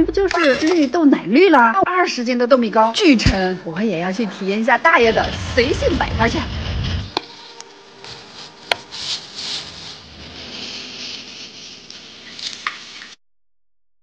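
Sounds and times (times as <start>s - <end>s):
soft rustle: 7.4s - 13.2s.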